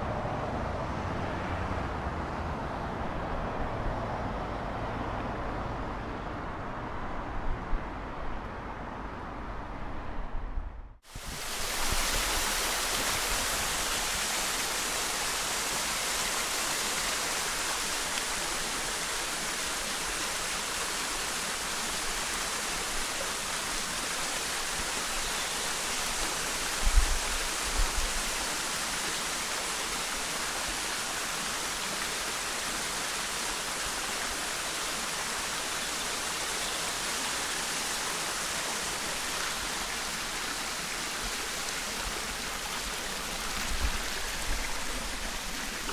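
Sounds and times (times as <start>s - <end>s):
stream babbling over rocks: 11.1s - 45.9s.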